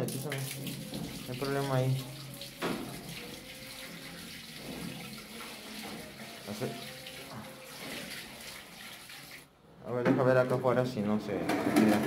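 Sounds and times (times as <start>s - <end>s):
water rushing down a drain pipe: 0.0s - 9.4s.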